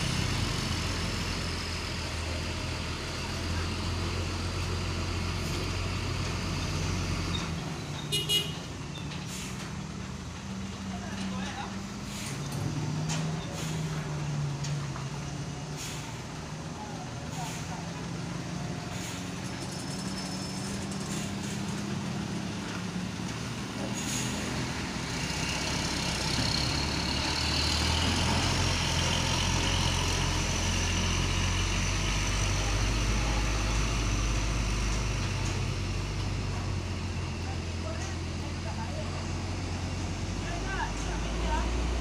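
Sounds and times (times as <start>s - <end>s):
diesel truck engine pulling hard: 0.0s - 42.0s.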